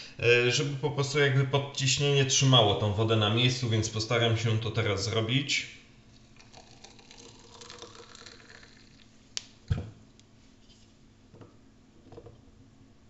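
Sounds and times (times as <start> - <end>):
hot water pouring: 6.1 - 9.2.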